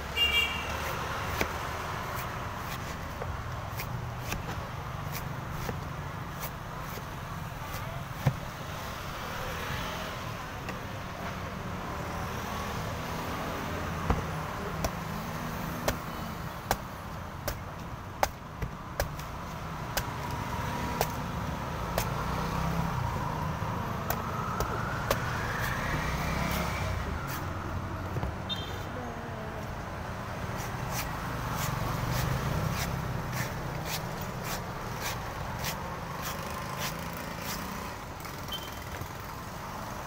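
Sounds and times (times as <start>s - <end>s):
traffic rumble: 0.0s - 40.0s
cleaver chopping coconut husk: 0.7s - 9.0s, 13.0s - 27.5s, 30.6s - 37.9s.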